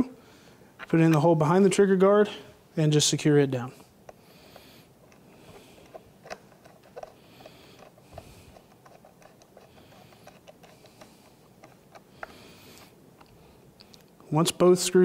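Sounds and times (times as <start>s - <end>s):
screw threading clicks and scraping: 4.1s - 14.1s.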